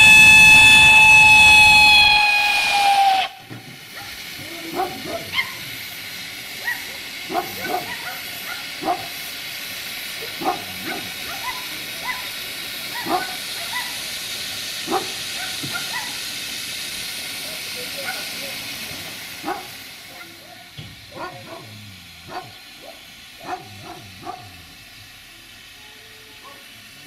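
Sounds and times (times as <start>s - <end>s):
steam locomotive hissing: 0.0s - 27.0s
dog barking: 3.9s - 5.6s, 6.6s - 9.2s, 10.2s - 12.3s, 12.9s - 14.0s, 14.8s - 16.2s, 18.0s - 18.3s, 19.4s - 24.8s, 26.4s - 26.7s.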